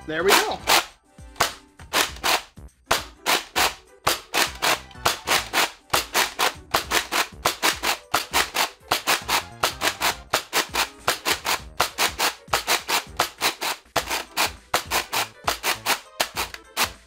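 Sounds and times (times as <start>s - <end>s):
ratcheting clicks: 0.3s - 17.0s
toy blaster pump strokes: 0.3s - 17.0s
dart firing pop: 0.4s - 13.4s.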